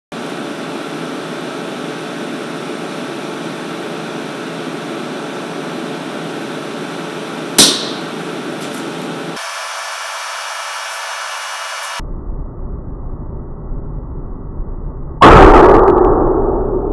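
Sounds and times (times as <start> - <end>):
welding power unit hum: 0.1 - 12.0
stud welding gun crack: 7.6 - 9.1.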